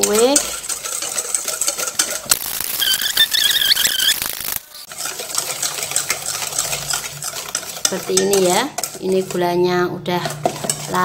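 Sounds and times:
whisk clicking against metal bowl: 0.0s - 2.3s, 4.9s - 11.0s
wavering high squeal: 2.7s - 4.5s.

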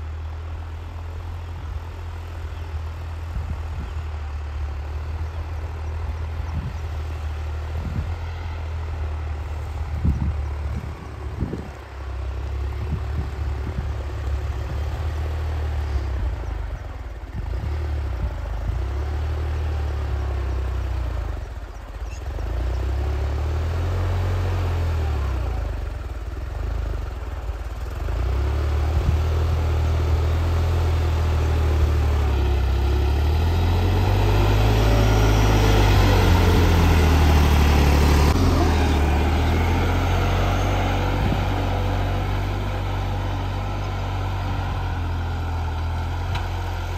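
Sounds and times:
tractor diesel engine under load: 0.0s - 46.9s.

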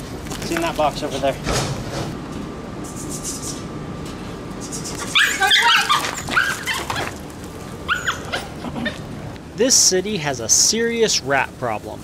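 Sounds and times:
dog yipping and whining: 4.8s - 7.1s, 7.9s - 9.0s.

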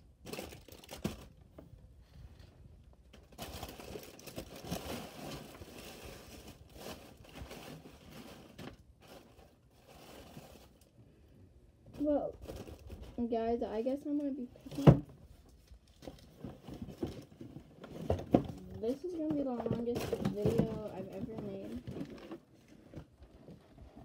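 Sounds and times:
plastic bags crinkling: 0.2s - 1.4s, 3.2s - 11.0s, 12.0s - 13.3s.

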